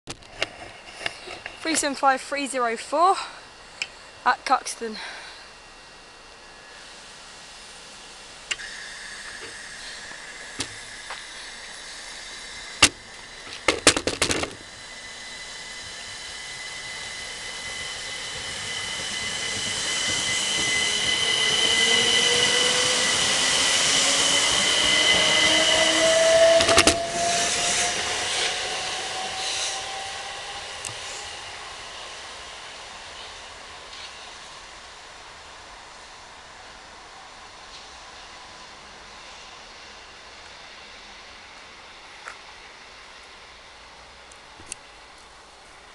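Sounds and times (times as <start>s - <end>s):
rising drive whine: 0.1s - 45.9s
electric train passing: 0.2s - 45.9s
high squeal: 8.6s - 13.4s, 14.6s - 32.4s.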